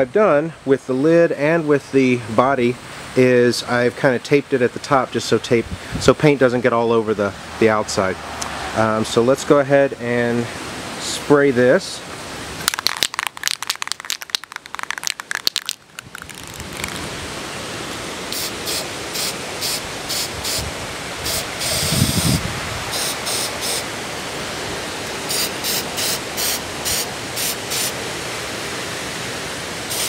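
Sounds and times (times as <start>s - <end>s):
spray can ball rattling: 12.6s - 17.0s
spray paint hissing: 18.4s - 20.6s, 22.9s - 23.8s, 25.3s - 28.0s.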